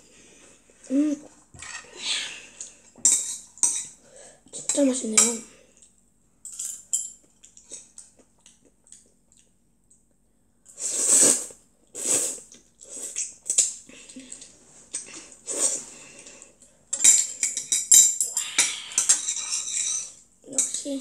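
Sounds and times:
child slurping noodles: 10.8s - 13.2s, 15.4s - 15.9s.

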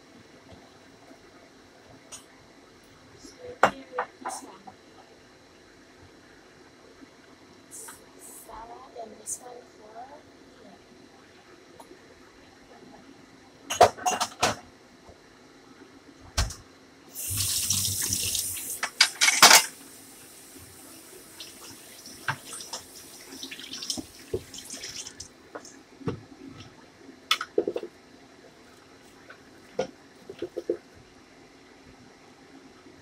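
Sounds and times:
cutting board and utensils clattering: 18.8s - 19.8s
tap running into a sink: 21.4s - 26.2s.

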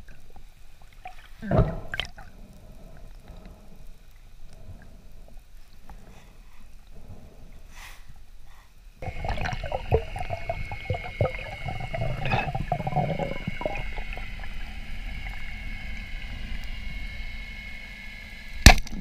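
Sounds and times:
water gurgling and bubbling: 9.0s - 18.4s.

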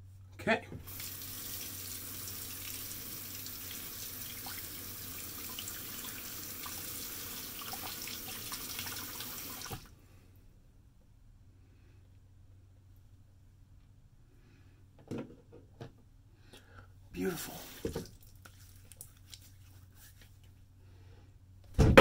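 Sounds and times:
tap water splashing into basin: 17.8s - 19.1s.

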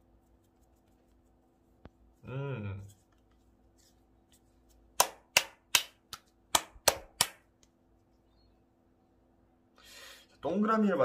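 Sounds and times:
palms slapping dough: 2.9s - 7.8s.

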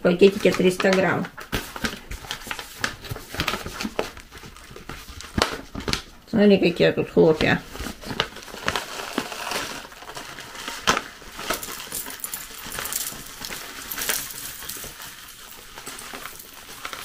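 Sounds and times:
cereal flakes pattering into glass bowl: 8.5s - 17.0s.

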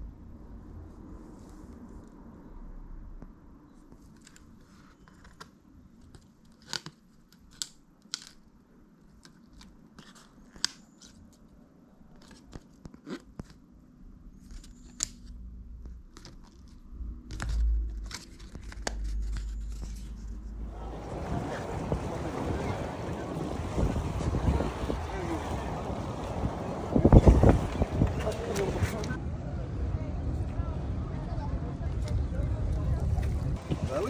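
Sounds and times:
low rumble: 14.0s - 33.9s.

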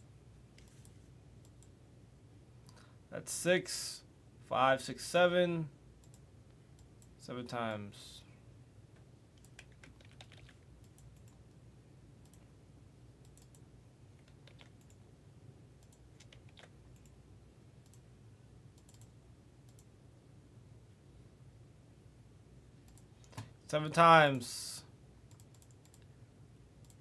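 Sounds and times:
low steady hum: 0.0s - 27.0s
mouse and keyboard clicks: 14.2s - 15.0s, 15.8s - 17.1s.

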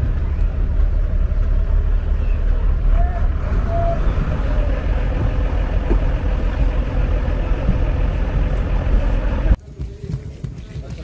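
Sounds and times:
motor vehicle rumbling: 0.0s - 11.0s.

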